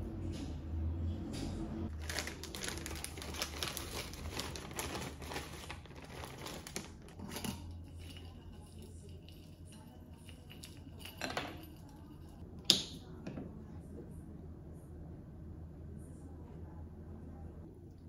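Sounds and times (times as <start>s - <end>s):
plastic bag crinkling: 1.9s - 7.4s.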